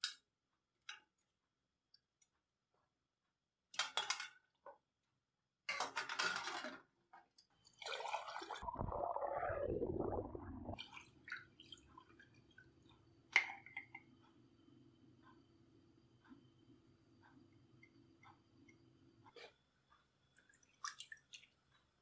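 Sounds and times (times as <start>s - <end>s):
water pouring into a pot: 7.8s - 10.9s.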